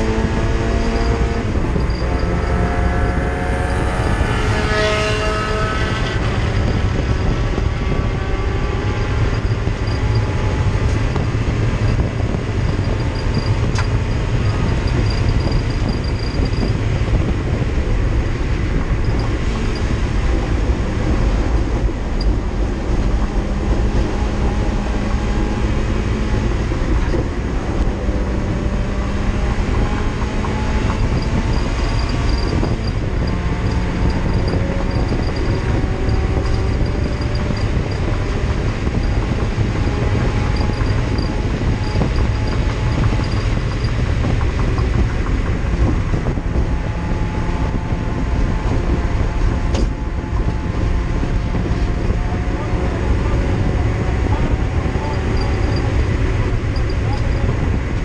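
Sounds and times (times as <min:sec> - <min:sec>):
race car engine at high revs: 0:00.0 - 0:58.0
road and wind noise: 0:00.0 - 0:58.0.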